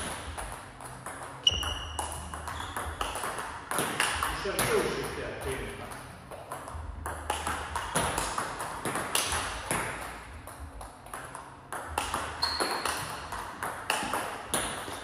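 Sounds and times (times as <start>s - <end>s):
table tennis ball clicks: 5.8s - 15.0s.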